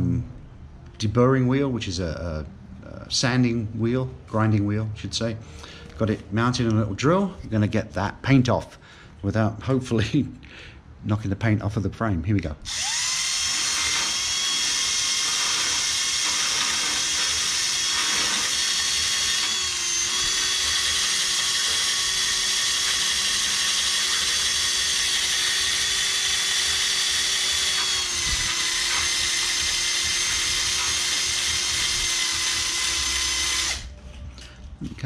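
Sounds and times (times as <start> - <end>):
grinding wheel on metal: 12.7 - 33.9.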